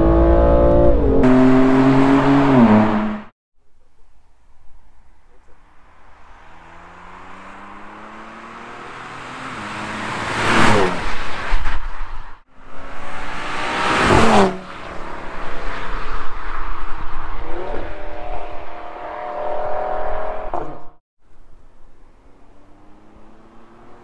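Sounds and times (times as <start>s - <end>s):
engine at high revs: 0.0s - 3.3s, 6.4s - 11.1s, 12.6s - 15.7s, 17.4s - 21.0s, 22.6s - 24.0s
sports cars accelerating past: 0.0s - 3.3s, 6.1s - 11.2s, 12.6s - 21.0s, 22.3s - 24.0s.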